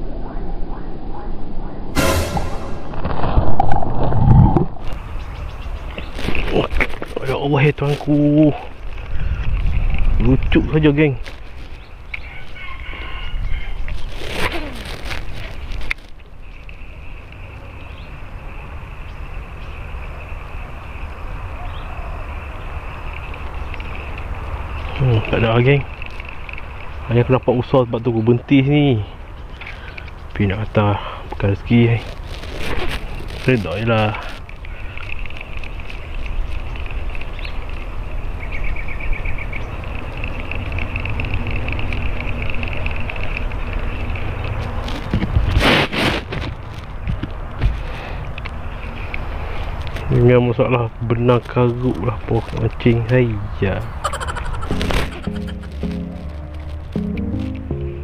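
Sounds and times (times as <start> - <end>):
wind rumble on microphone: 2.8 - 21.8, 30.2 - 54.6
insects chirring: 16.3 - 28.6.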